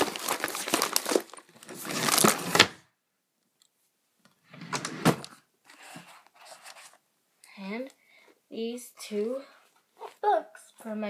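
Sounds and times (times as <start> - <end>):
objects rustling and clattering: 0.0 - 2.8, 4.6 - 7.0.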